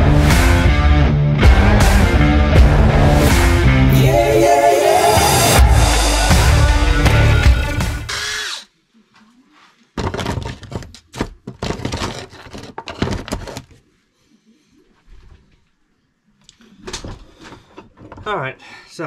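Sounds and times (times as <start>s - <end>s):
clunks and knocks at workbench: 10.0s - 12.1s.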